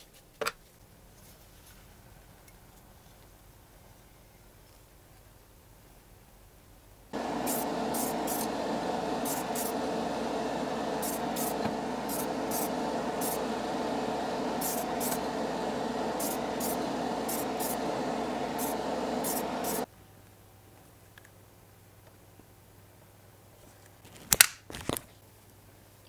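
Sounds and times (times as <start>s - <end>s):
extractor fan running: 7.1s - 19.9s
spray paint can hissing: 7.2s - 19.9s.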